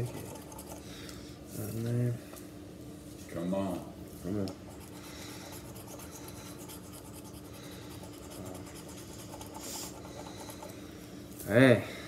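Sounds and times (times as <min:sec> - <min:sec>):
lottery ticket being scratched: 0:04.6 - 0:10.6.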